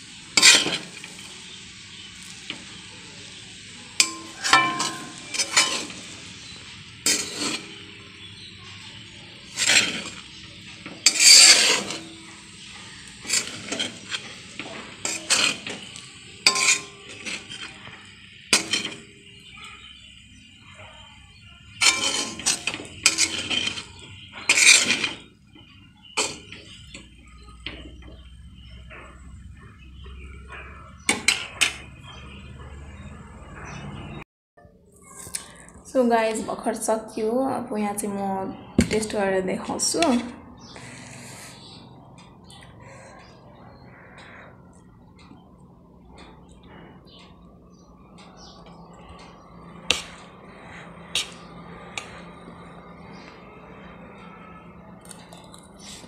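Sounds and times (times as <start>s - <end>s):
frying hiss: 0.0s - 32.8s
metal spatula scraping a pan: 0.3s - 20.2s, 21.7s - 29.2s, 30.2s - 32.3s, 48.4s - 56.0s.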